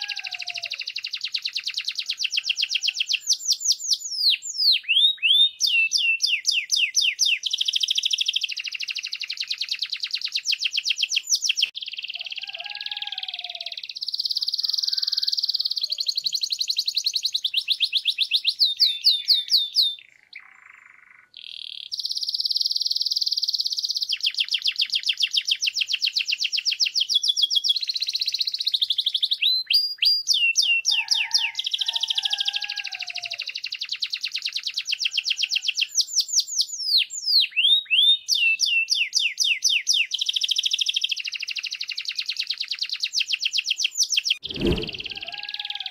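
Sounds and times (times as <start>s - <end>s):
canary singing trills: 0.0s - 26.3s.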